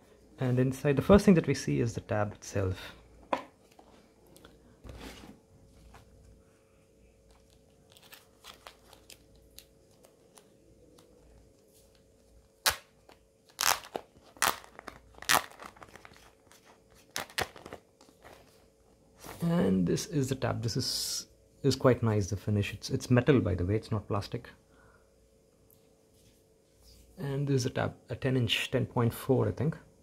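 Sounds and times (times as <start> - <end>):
wrapper crinkling and tearing: 7.3 - 10.5, 12.6 - 18.2.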